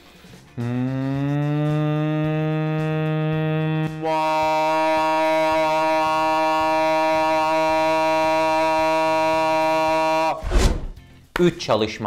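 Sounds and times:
man singing long aah: 0:00.6 - 0:10.4.

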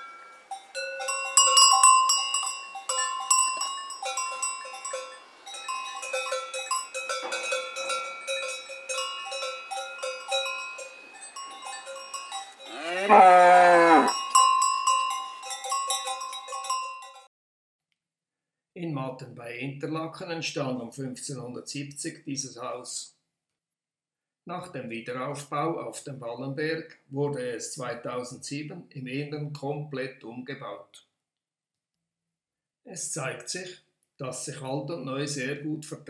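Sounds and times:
cowbells clanking: 0:00.0 - 0:17.3
cow mooing loudly: 0:12.6 - 0:14.2.

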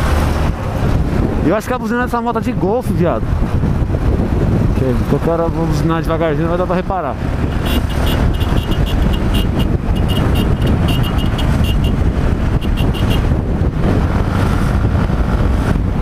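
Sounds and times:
wind noise on microphone: 0:00.0 - 0:16.0
motorcycle engine running: 0:07.4 - 0:15.6.

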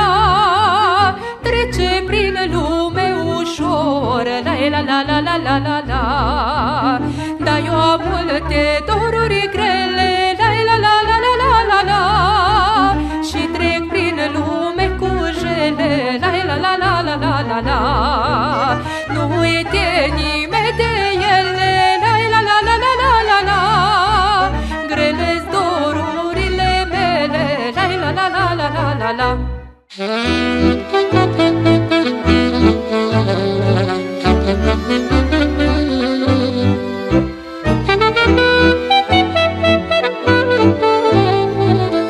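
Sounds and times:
folk party music: 0:29.9 - 0:42.0.

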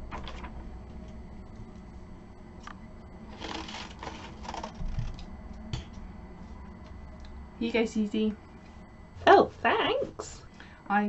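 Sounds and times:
paper rustling: 0:00.0 - 0:00.6, 0:03.3 - 0:05.2.

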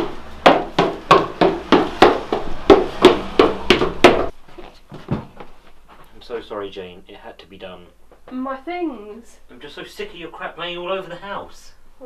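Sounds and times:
footsteps pounding up stairs: 0:00.0 - 0:05.6.

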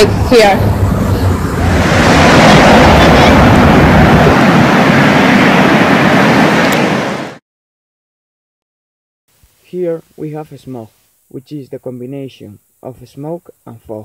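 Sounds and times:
busy road traffic: 0:00.0 - 0:07.1.

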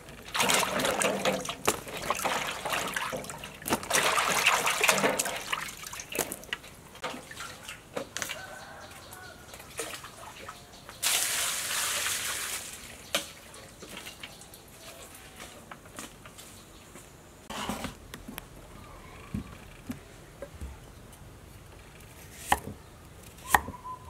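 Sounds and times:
water pouring and splashing: 0:00.2 - 0:08.6, 0:09.6 - 0:14.5.

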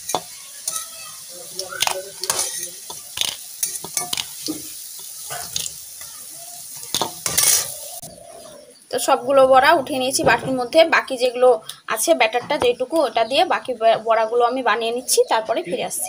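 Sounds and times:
fritters sizzling in hot oil: 0:00.0 - 0:11.1
metal spatula scraping a pan: 0:01.8 - 0:05.8, 0:06.8 - 0:08.0.

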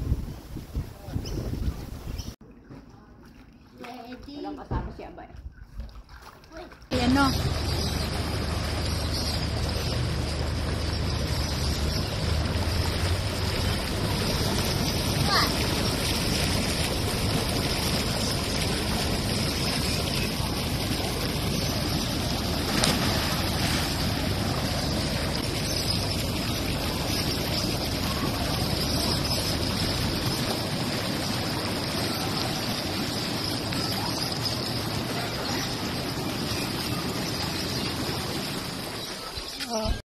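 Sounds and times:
spa jets bubbling water: 0:06.5 - 0:40.0
low rumble: 0:06.9 - 0:33.2.

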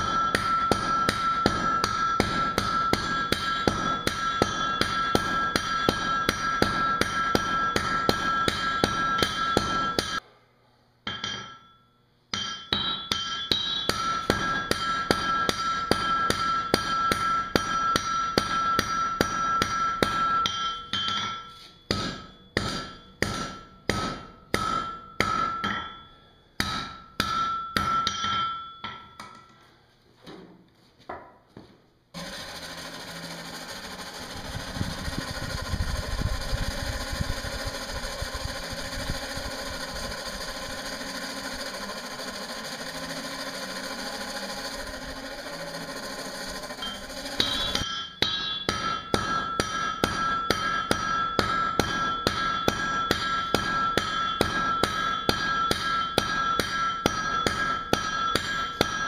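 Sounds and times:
hammer striking iron on anvil: 0:00.0 - 0:10.3, 0:11.0 - 0:29.6, 0:32.2 - 0:59.0.

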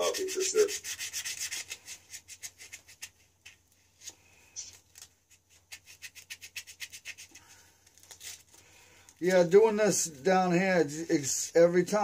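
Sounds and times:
rubbing strokes scrubbing: 0:00.0 - 0:03.2.

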